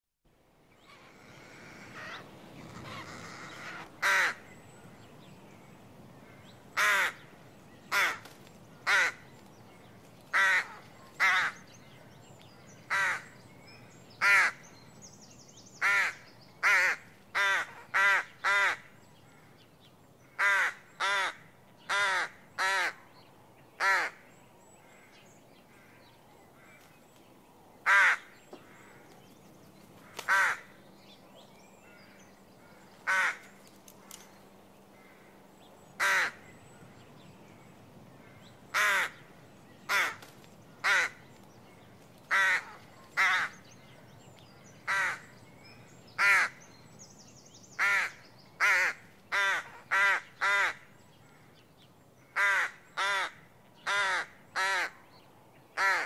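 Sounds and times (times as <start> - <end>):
rook cawing: 0.8 - 4.5, 6.2 - 7.3, 7.9 - 9.3, 10.3 - 11.7, 12.9 - 13.4, 14.2 - 14.7, 15.8 - 19.6, 20.2 - 23.0, 23.8 - 26.9, 27.8 - 29.2, 30.0 - 30.8, 31.8 - 33.6, 35.0 - 36.5, 38.2 - 39.3, 39.9 - 41.3, 42.3 - 43.6, 44.8 - 45.3, 46.2 - 46.6, 47.7 - 51.6, 52.2 - 55.0, 55.8 - 56.0.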